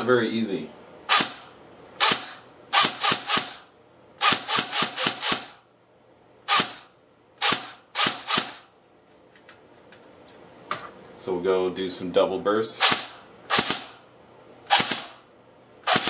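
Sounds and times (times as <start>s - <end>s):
airsoft rifle shots: 1.1s - 5.6s, 6.5s - 8.7s, 12.8s - 14.0s, 14.7s - 15.2s.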